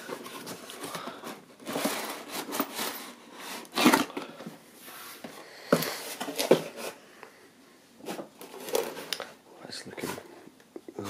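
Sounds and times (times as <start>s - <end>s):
cardboard scraping and rustling: 0.0s - 4.2s, 4.8s - 7.0s, 8.0s - 9.1s.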